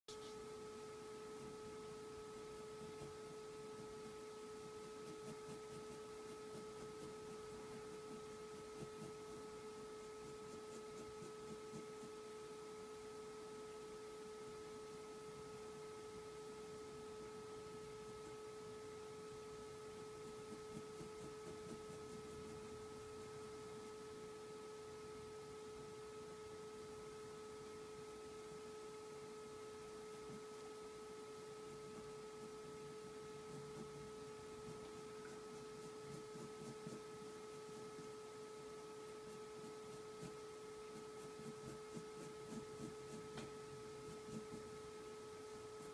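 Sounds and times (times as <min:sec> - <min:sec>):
electrical hum: 0:00.1 - 0:45.9
pencil scratching paper: 0:02.6 - 0:12.3, 0:20.0 - 0:22.8, 0:33.3 - 0:38.2, 0:38.8 - 0:44.8.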